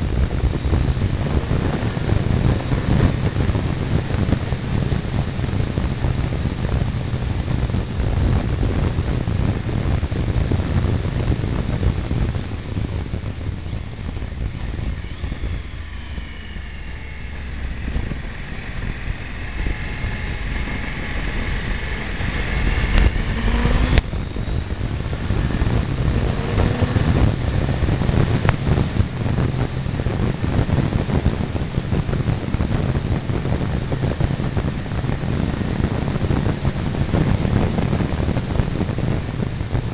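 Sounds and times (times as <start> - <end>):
heavy wind noise: 0.0 - 39.9
motorcycle engine: 0.0 - 39.9.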